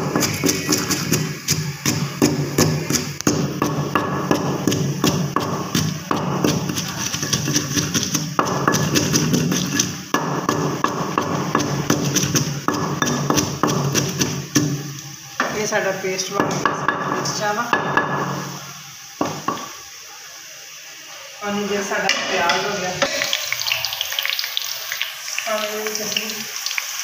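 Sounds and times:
pestle pounding in stone mortar: 0.0 - 15.6.

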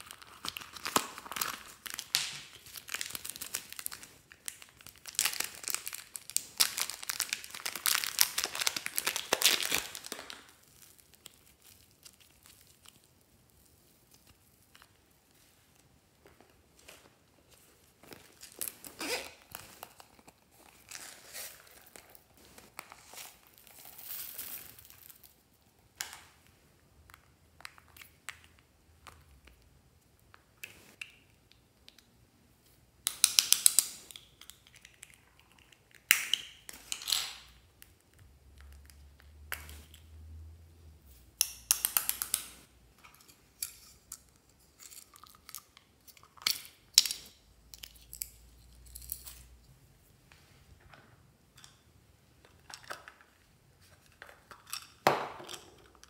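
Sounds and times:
plastic containers handled and opened: 0.0 - 13.1, 14.0 - 29.6, 50.4 - 56.0
crinkling: 0.0 - 31.0.

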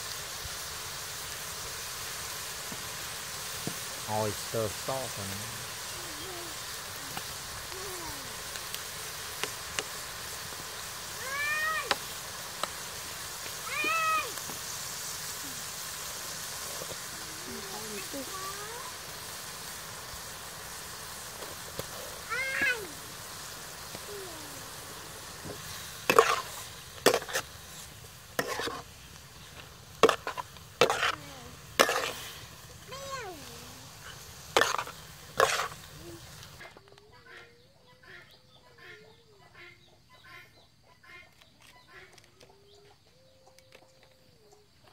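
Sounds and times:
meat sizzling: 0.0 - 36.7
background hiss: 0.0 - 44.9
metal spatula scraping wok: 25.4 - 32.6, 34.0 - 35.9.

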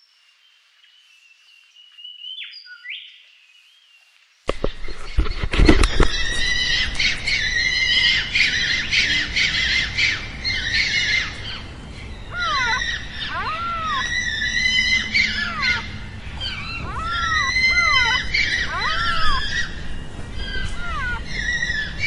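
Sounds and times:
birds squawking and chirping: 4.5 - 22.0
loud arching bird calls: 4.5 - 22.0.

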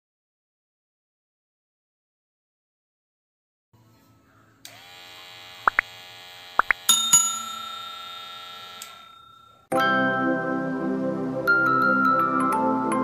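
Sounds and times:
bright bell chime: 6.9 - 9.7.

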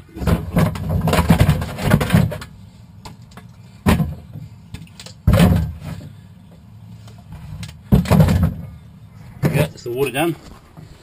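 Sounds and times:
plastic bottles clattering: 0.0 - 2.5, 3.1 - 6.2, 7.6 - 8.7.

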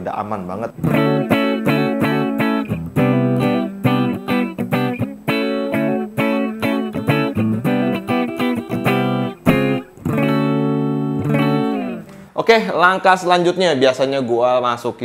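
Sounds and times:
clean electric guitar picking: 0.8 - 12.4.

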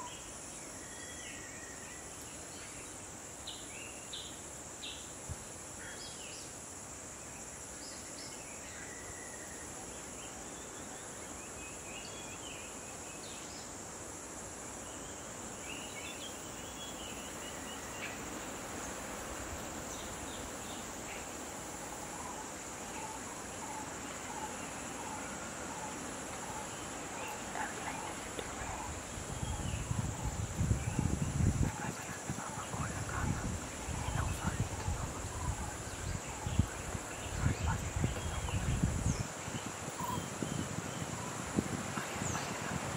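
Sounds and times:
insect chorus: 0.0 - 42.9
bird chirps: 39.9 - 41.1.

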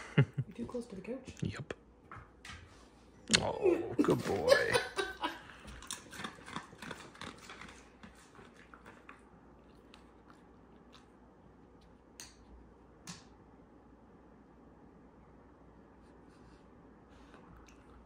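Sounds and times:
dog crunching a treat: 5.6 - 12.5.

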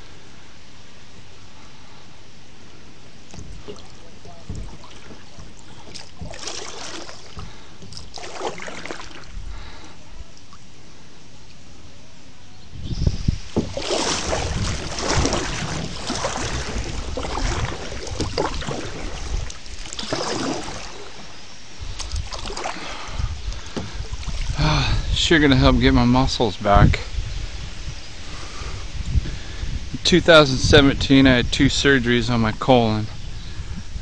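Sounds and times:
kayak paddle splashing water: 3.1 - 10.8, 13.3 - 24.9.

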